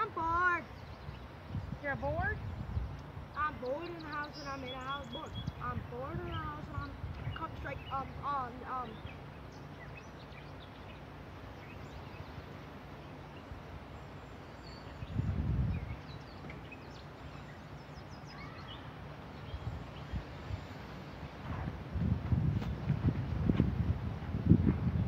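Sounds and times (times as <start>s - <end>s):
outdoor background noise: 0.0s - 25.0s
faint bird chirps: 8.8s - 20.9s.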